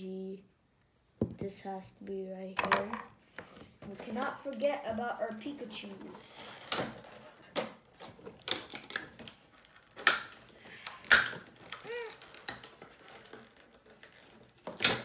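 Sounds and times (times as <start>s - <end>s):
sharp plastic cracks: 6.6s - 15.0s
plastic packaging crackling: 7.8s - 15.0s.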